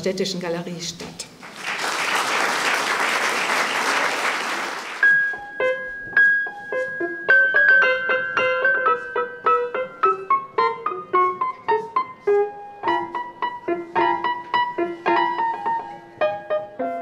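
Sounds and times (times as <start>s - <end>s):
audience applauding: 1.4s - 5.0s
piano music: 5.0s - 17.0s.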